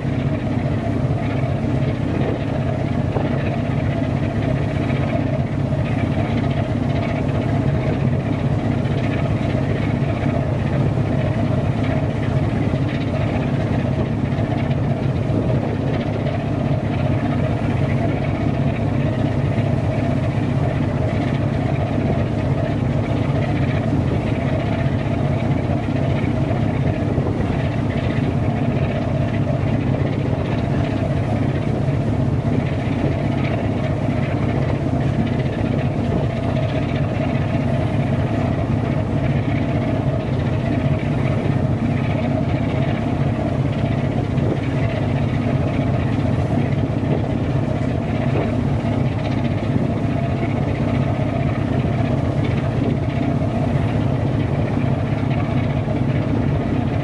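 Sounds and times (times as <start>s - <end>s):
marine diesel engine droning: 0.0s - 57.0s.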